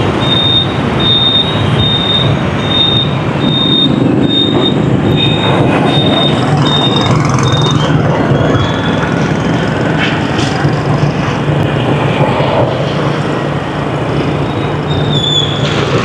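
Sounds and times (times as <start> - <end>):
street traffic rumble: 0.0 - 16.0
high electronic beep: 0.2 - 9.1.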